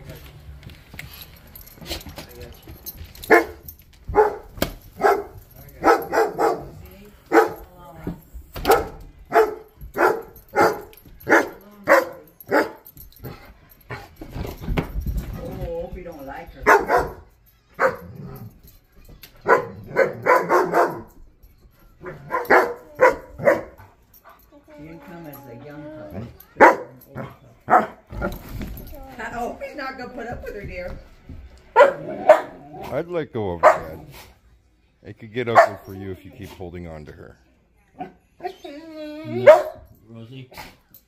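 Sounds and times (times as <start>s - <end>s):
dog barking: 3.3s - 7.7s, 8.6s - 12.9s, 16.6s - 18.4s, 19.4s - 21.2s, 22.0s - 23.9s, 26.5s - 28.3s, 31.7s - 32.8s, 33.6s - 34.2s, 35.6s - 35.9s, 39.3s - 39.9s.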